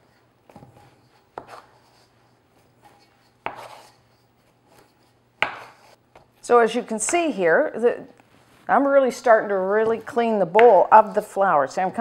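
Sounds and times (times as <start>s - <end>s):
dough being cut and lifted: 0.1s - 6.4s.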